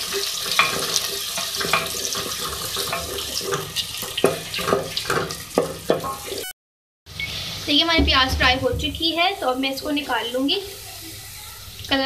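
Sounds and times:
onions sizzling in oil: 0:00.0 - 0:06.5, 0:07.1 - 0:12.0
wooden spatula knocking on pot: 0:08.0 - 0:09.2.

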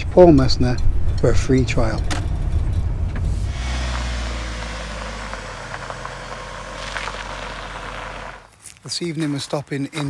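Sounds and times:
van engine and road rumble: 0:00.0 - 0:10.0
tyre and wind hiss: 0:03.3 - 0:10.0.

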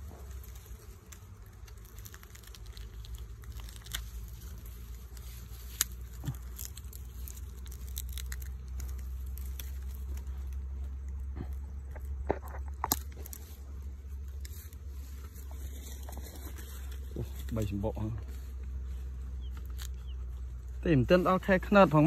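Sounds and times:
dry grass rustling and crackling: 0:00.0 - 0:22.0.

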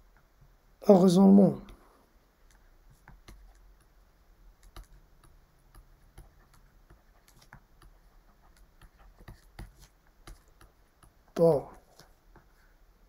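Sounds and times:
stylus tapping on tablet: 0:02.4 - 0:12.5.

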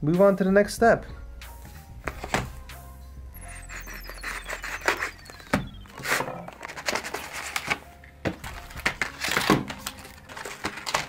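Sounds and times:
packaging crinkling and rustling: 0:03.6 - 0:11.0.

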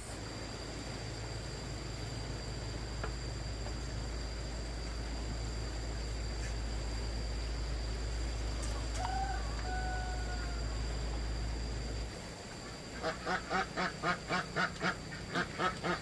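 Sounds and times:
low engine drone: 0:00.0 - 0:16.0
rooster crowing: 0:08.6 - 0:11.0.

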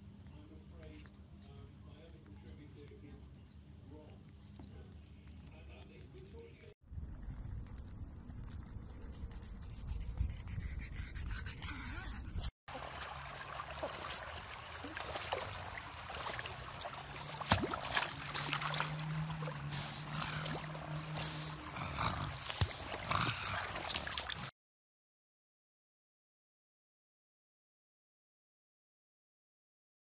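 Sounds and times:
low rumble of wind on microphone: 0:06.8 - 0:12.5
water splashing and lapping: 0:12.7 - 0:24.5.

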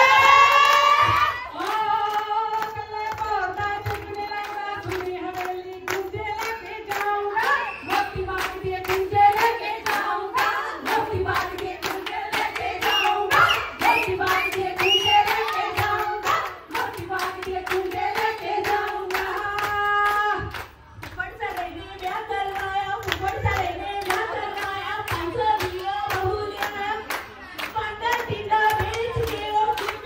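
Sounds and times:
people singing: 0:00.0 - 0:30.0
rhythmic hand clapping: 0:00.0 - 0:30.0.

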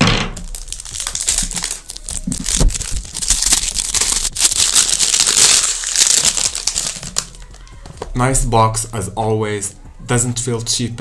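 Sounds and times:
wrapping crinkling and tearing: 0:00.4 - 0:08.1.

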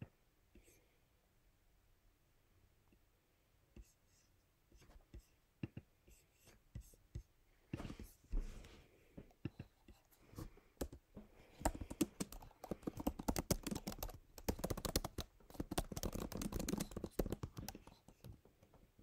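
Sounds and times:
keyboard typing clicks: 0:11.6 - 0:18.4.

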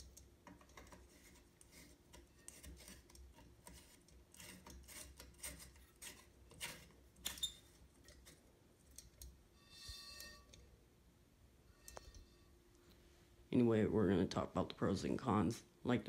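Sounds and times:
glass light globe scraping: 0:00.0 - 0:10.8, 0:11.6 - 0:13.3.

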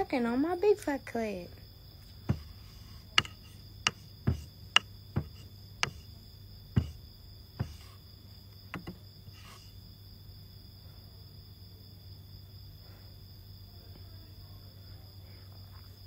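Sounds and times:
sharp clicks or taps: 0:03.2 - 0:06.0.

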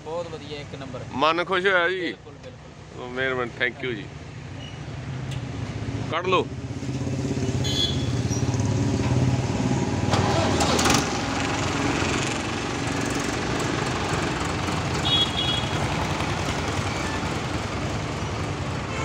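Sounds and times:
tractor diesel engine revving: 0:07.0 - 0:18.9.

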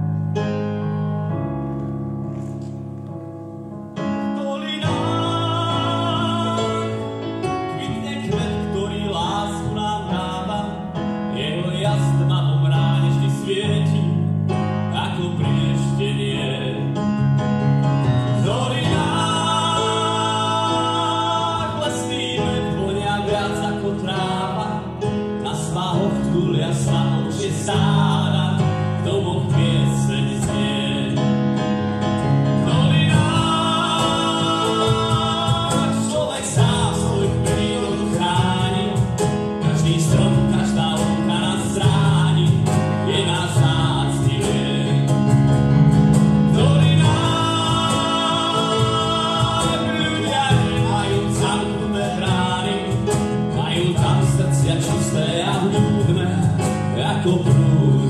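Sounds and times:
electric keyboard: 0:00.0 - 0:58.0
man singing: 0:04.1 - 0:17.1, 0:18.1 - 0:31.5, 0:32.5 - 0:45.6, 0:46.4 - 0:58.0
drum kit: 0:18.3 - 0:24.9, 0:25.6 - 0:58.0.

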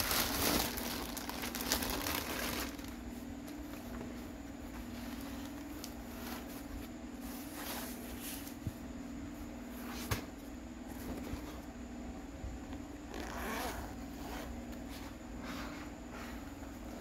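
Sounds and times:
fabric and plastic rustling: 0:00.0 - 0:08.8
steady low hum: 0:00.0 - 0:17.0.

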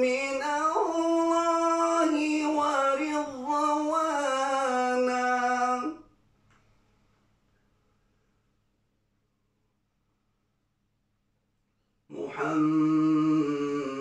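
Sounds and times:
man reciting in melodic chant: 0:00.0 - 0:06.1, 0:12.1 - 0:14.0.

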